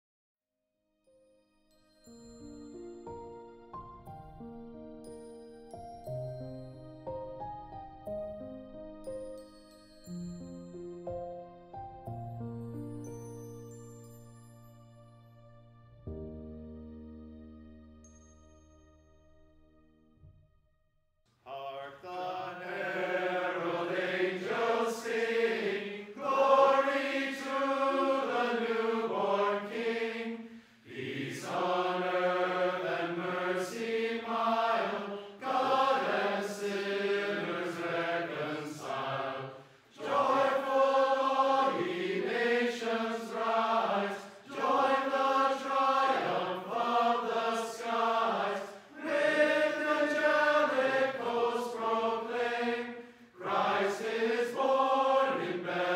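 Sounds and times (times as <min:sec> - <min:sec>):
mixed choir singing a carol: 0:21.5 - 0:55.9.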